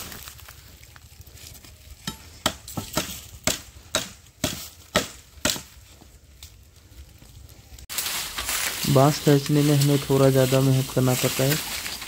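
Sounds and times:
blade chopping bamboo: 2.0s - 5.7s.

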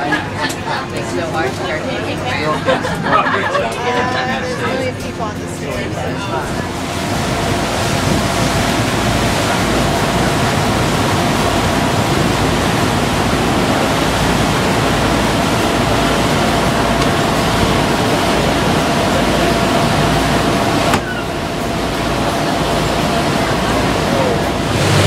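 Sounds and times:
wind and water rushing: 5.8s - 25.0s.

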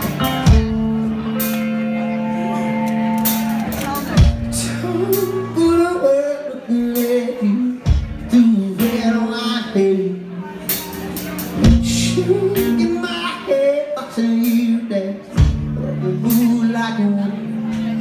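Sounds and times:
electric guitar chords: 0.0s - 18.0s
man singing: 4.5s - 10.8s, 11.6s - 17.8s.

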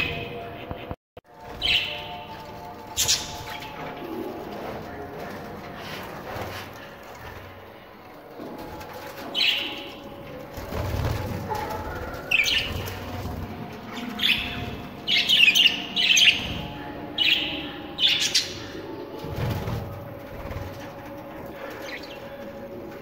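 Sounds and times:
budgerigars chirping: 12.2s - 13.0s.

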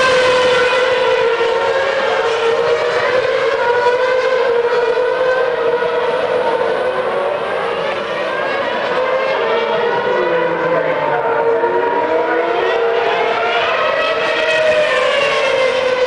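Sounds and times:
racing car engines screaming: 0.0s - 16.0s.

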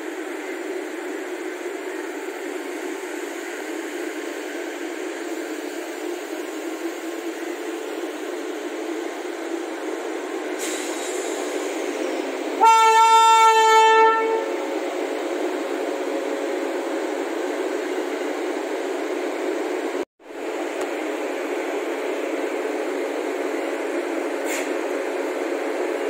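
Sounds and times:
locomotive horn: 12.6s - 14.6s.

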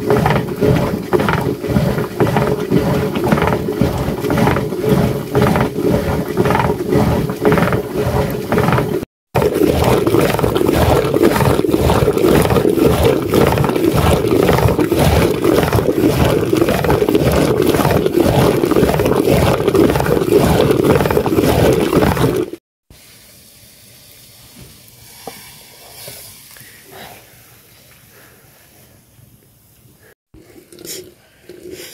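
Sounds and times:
milk churning sloshing and knocking: 0.0s - 22.6s.

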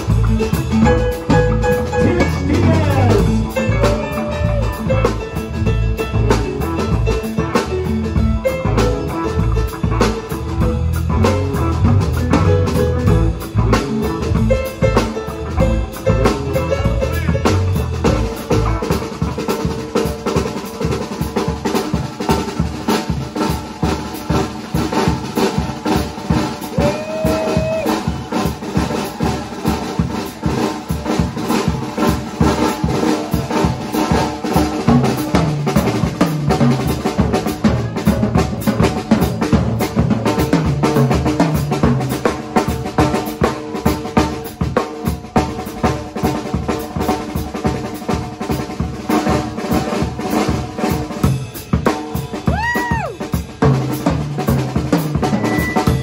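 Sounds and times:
drum kit: 0.0s - 56.0s
rock band playing: 0.0s - 56.0s.

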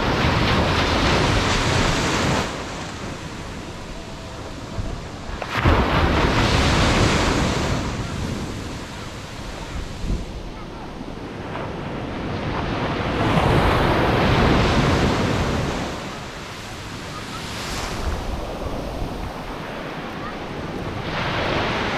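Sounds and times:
ocean surf breaking: 0.0s - 21.9s
wind noise on microphone: 0.0s - 21.9s.

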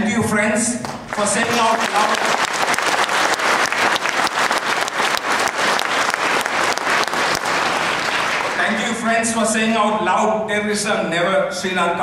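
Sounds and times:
audience applauding: 0.8s - 9.0s.

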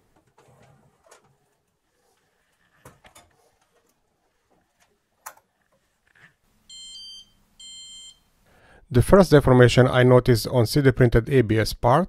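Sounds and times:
clicks and light knocks: 2.5s - 6.4s.

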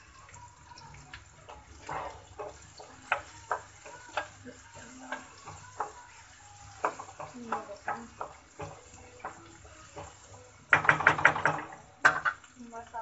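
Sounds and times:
faint frying sizzle: 0.0s - 13.0s
wooden spoon scraping a pan: 0.0s - 13.0s.

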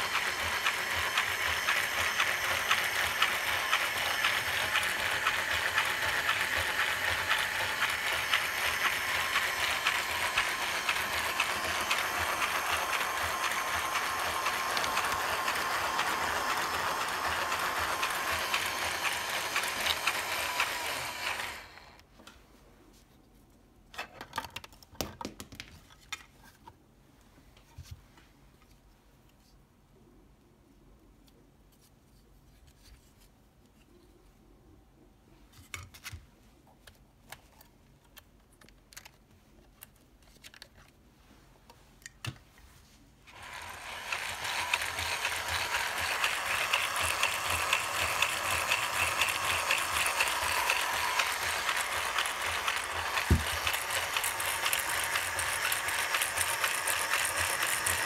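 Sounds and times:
electric motor whirring: 0.0s - 22.0s, 43.3s - 58.0s
plastic gears ticking: 0.0s - 22.0s, 43.3s - 58.0s
plastic parts clicking: 36.8s - 40.9s.

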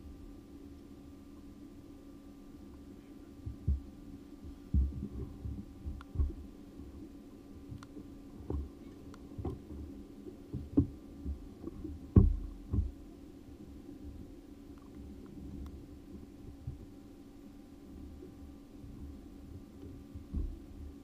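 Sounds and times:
steady low hum: 0.0s - 21.0s
muffled thumps on boat deck: 3.4s - 6.5s, 8.4s - 9.9s, 10.5s - 13.1s, 19.5s - 21.0s.

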